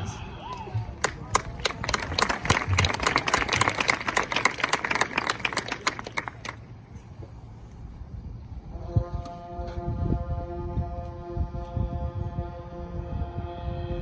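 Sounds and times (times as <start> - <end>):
audience clapping: 0.5 - 6.7.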